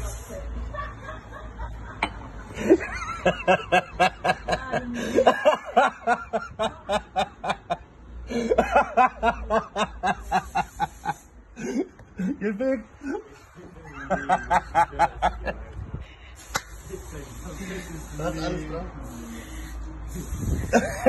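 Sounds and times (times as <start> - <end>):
person laughing hard: 20.6 - 21.0.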